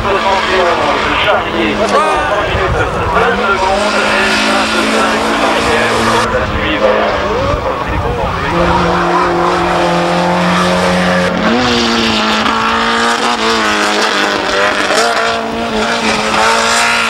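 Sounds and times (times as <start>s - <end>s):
racing car engine accelerating: 0.0s - 17.0s.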